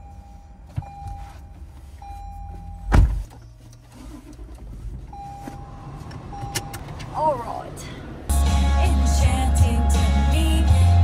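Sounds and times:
car warning chime: 0:00.0 - 0:03.0, 0:05.1 - 0:07.4
car door thump: 0:02.9 - 0:03.3.

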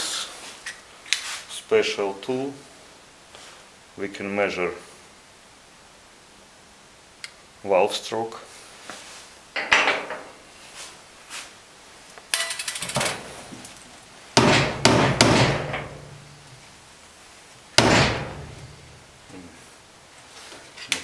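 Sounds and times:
steel tools clattering on metal: 0:12.3 - 0:13.2.

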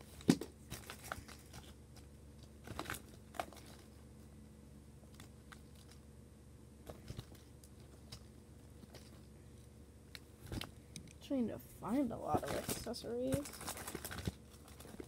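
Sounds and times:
plastic toys and packaging rustling: 0:00.0 - 0:04.2, 0:05.1 - 0:06.1, 0:06.8 - 0:11.0, 0:11.8 - 0:15.0.

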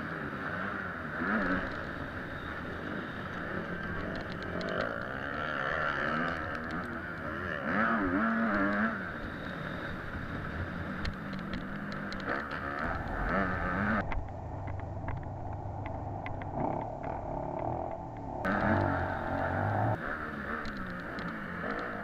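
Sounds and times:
motorbike engine revving: 0:00.0 - 0:14.0, 0:16.4 - 0:22.0.

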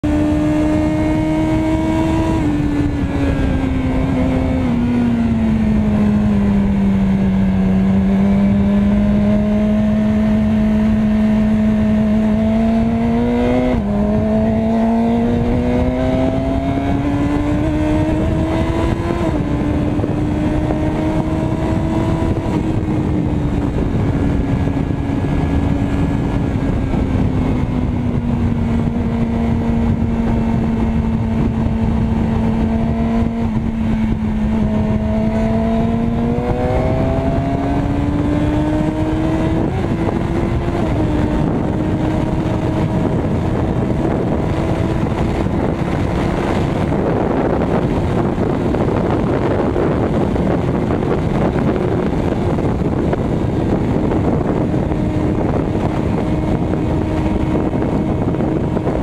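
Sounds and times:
motorcycle engine running: 0:00.0 - 0:59.0
steady rushing noise: 0:00.0 - 0:59.0.

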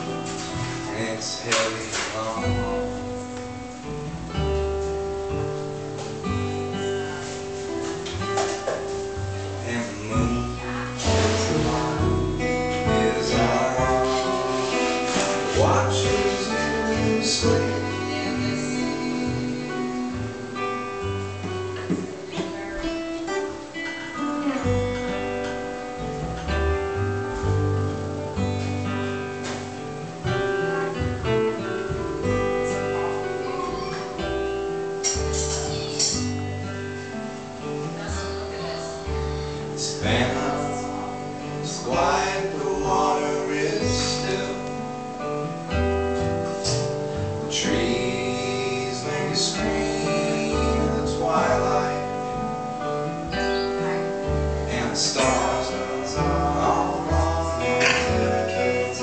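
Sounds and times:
man singing: 0:00.0 - 0:03.3, 0:09.5 - 0:21.0, 0:39.6 - 0:45.3, 0:46.6 - 0:52.8, 0:54.6 - 0:59.0
plucked double bass: 0:00.0 - 0:59.0
strummed acoustic guitars: 0:00.0 - 0:59.0.

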